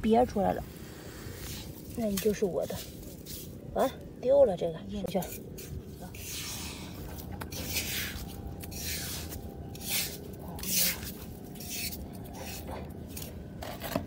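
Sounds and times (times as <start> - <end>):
low background noise: 0.0 - 14.0
spade scraping wet sand: 7.5 - 12.7.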